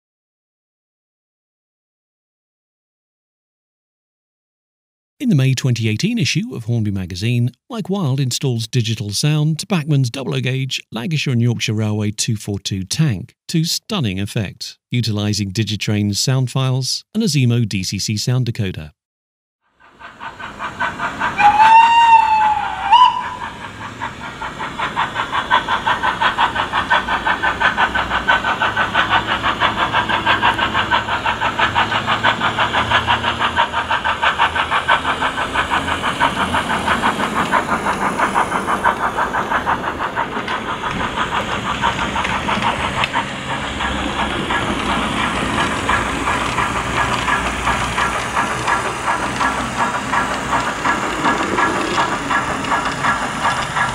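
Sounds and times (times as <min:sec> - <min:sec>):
steam locomotive exhaust chuffs: 0:19.7 - 0:53.9
steam locomotive whistle: 0:21.4 - 0:23.6.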